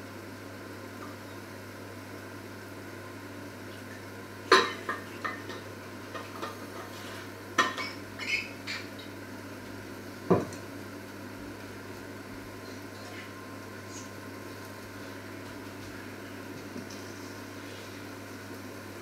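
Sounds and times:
metal pots and pans clattering: 7.6 - 8.9.

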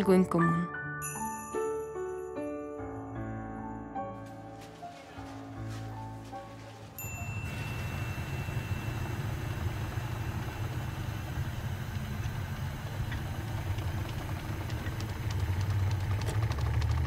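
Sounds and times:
vehicle engines idling: 4.5 - 17.0
thin high tone: 6.6 - 10.4.

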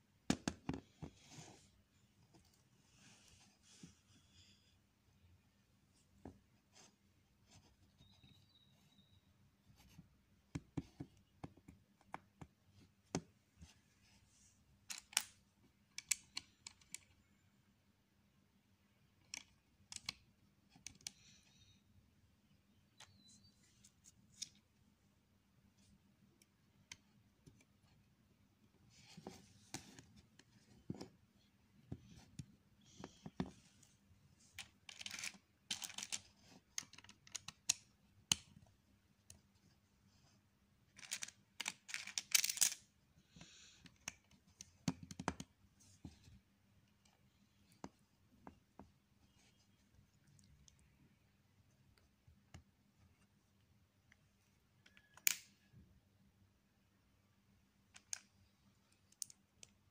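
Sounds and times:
plastic bricks clicking and rattling: 34.6 - 37.8, 41.0 - 42.8.

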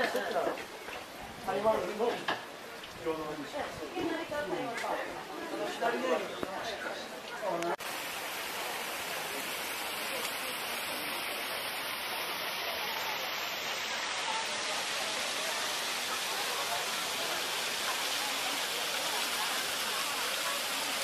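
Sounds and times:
water rushing over stream cascade: 7.4 - 21.0.

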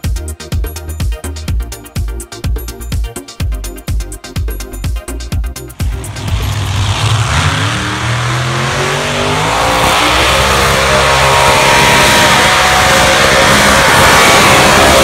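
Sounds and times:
electronic dance music: 2.2 - 15.0
vehicle engine at full throttle: 5.7 - 15.0.

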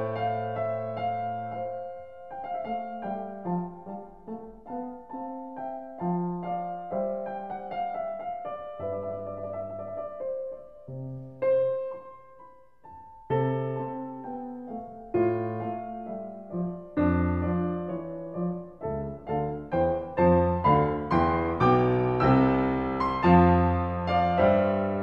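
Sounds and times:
solo piano chords: 0.0 - 25.0.

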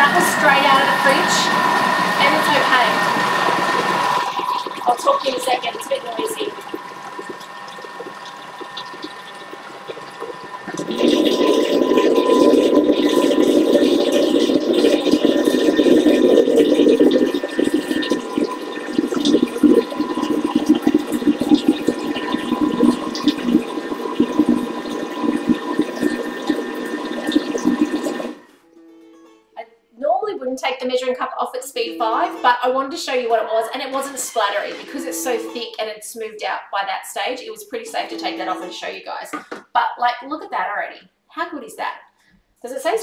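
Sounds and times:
food processor blade whirring: 0.0 - 28.4.

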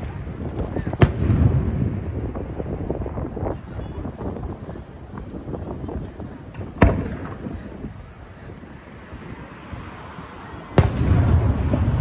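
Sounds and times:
low rolling rumble: 0.0 - 12.0
firework shell booming: 0.6 - 2.5, 6.5 - 7.7, 10.8 - 12.0.

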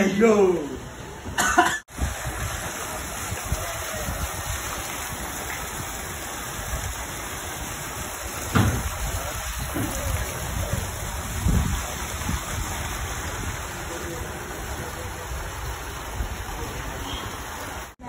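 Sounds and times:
water splashing into pond: 1.9 - 18.0
brief thump: 8.5 - 8.9.

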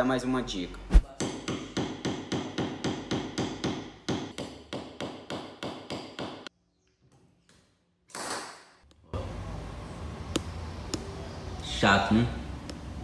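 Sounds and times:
hammer tapping on sheet metal: 1.2 - 6.5.

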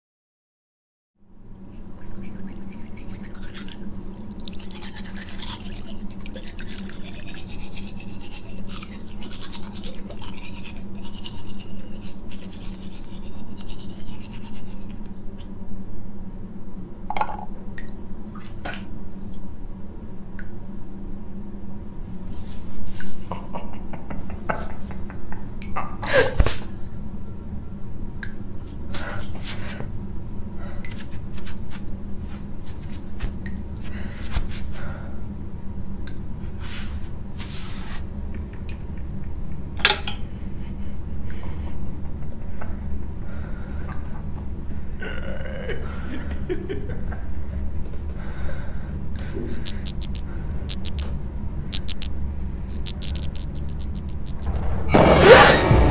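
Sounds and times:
low steady hum: 1.2 - 55.9
watery scrubbing at sink: 1.9 - 15.0.

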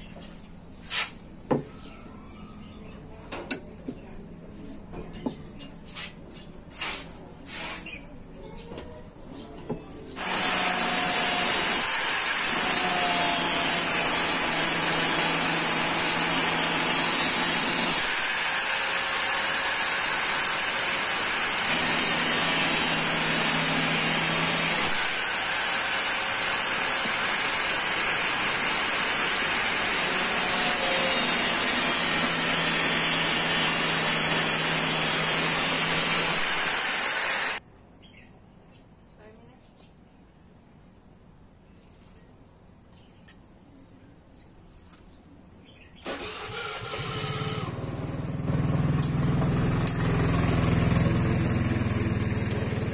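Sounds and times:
angle grinder cutting steel tube: 10.2 - 37.6, 48.8 - 52.9.

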